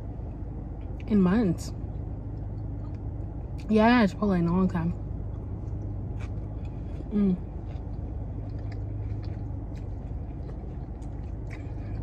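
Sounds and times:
chewing sounds: 5.3 - 12.0.

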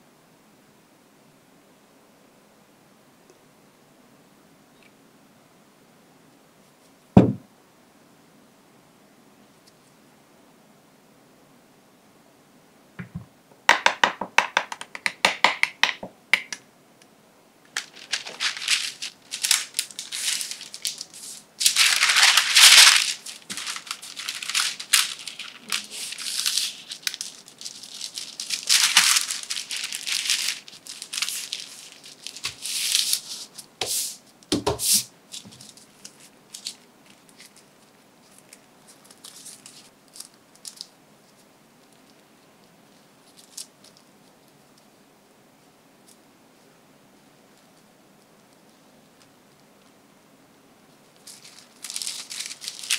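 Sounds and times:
dull thump: 7.2 - 7.4
baking paper crinkling: 17.7 - 34.2, 34.8 - 42.2, 42.9 - 44.4, 51.1 - 52.9.

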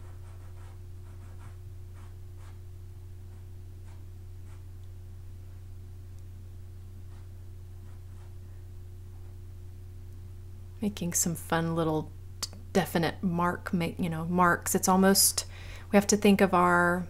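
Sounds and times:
pastel scratching on paper: 0.0 - 2.6, 3.3 - 4.7, 7.0 - 8.4
steady low hum: 0.0 - 17.0.

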